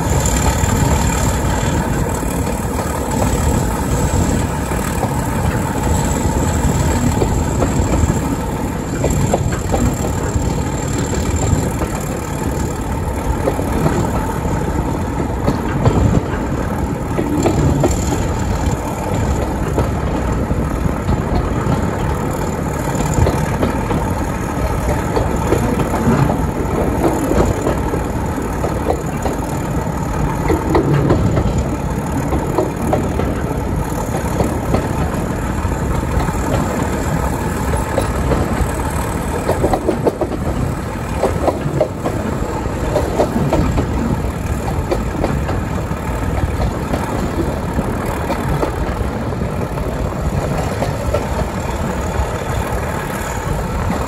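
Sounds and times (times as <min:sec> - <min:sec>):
train rumbling on track: 0:00.0 - 0:54.0
wheels and coach rattling: 0:00.0 - 0:54.0.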